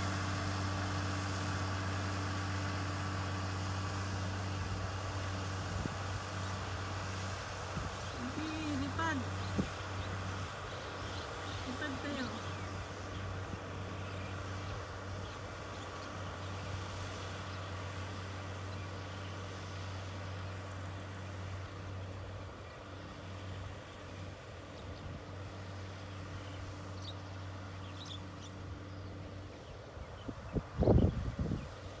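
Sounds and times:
tractor engine running: 0.0 - 31.3.

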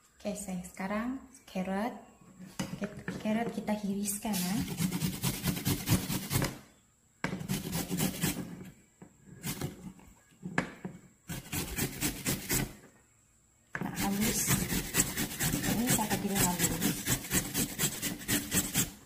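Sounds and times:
carrot grated on metal grater: 11.3 - 12.7, 13.9 - 19.0.

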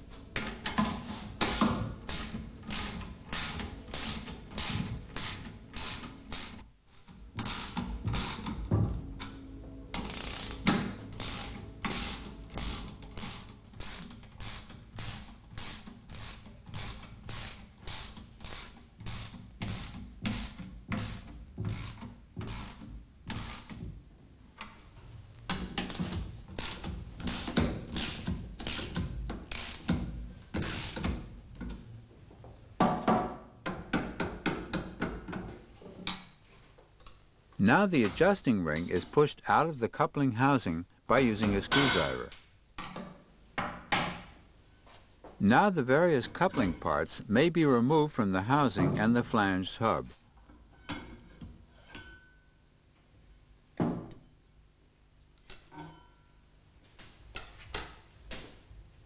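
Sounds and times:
ratchet wrench clicking: 0.8 - 8.6, 10.0 - 23.8, 25.8 - 30.0, 30.6 - 31.1.

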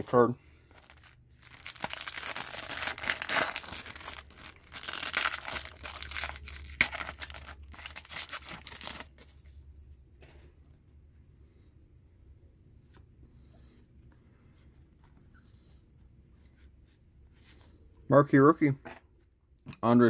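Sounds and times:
foil wrapper tearing and crinkling: 0.8 - 9.2.

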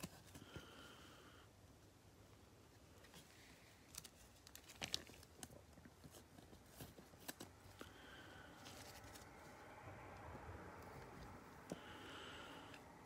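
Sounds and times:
cellophane wrapper crinkling: 3.5 - 7.8.

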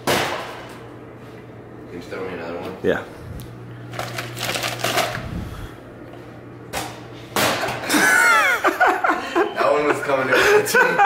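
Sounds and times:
man whooping laughter: 7.8 - 11.0.

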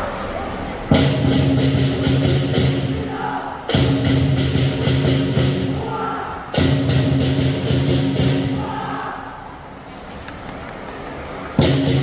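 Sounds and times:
big drum: 0.9 - 5.9, 6.5 - 8.6, 11.6 - 12.0.

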